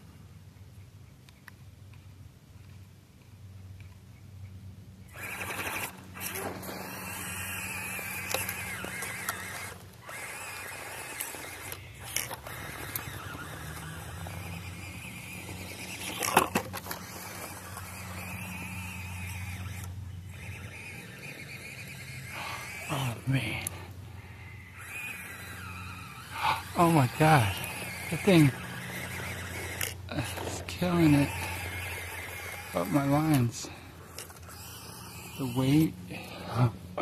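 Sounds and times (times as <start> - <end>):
small electric motor whining: 5.1 - 37.0
tyres scraping over dirt and rock: 5.2 - 19.9, 26.2 - 35.3.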